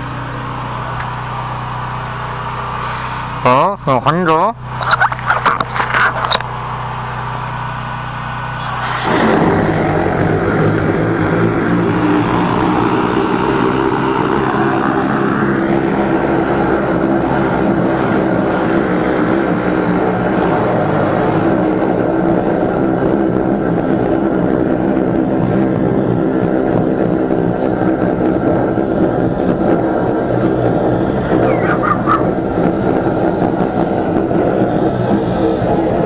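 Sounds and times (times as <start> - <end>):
sewer jetter engine running: 0.0 - 36.0
water jet hissing in pipe: 8.6 - 16.2.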